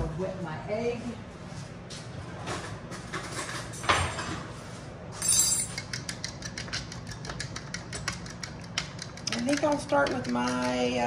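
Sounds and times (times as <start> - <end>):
fork whisking eggs in glass bowl: 6.0 - 11.0.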